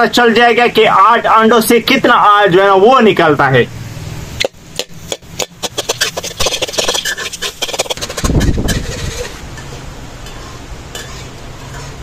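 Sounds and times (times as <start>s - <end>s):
spoon scraping metal pot: 4.8s - 12.0s.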